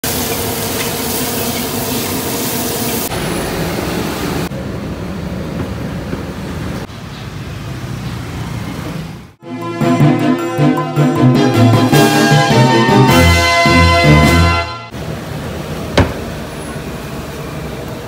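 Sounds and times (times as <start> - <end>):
flaming wok hissing roar: 0.0 - 4.8, 14.9 - 18.0.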